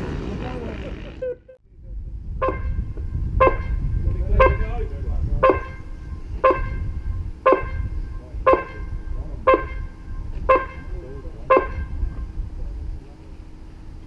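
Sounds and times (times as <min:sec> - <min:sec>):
low background rumble: 0:00.0 - 0:14.0
electronic beeps over loudspeakers: 0:05.4 - 0:06.8, 0:07.5 - 0:09.9, 0:10.5 - 0:10.9, 0:11.5 - 0:11.9.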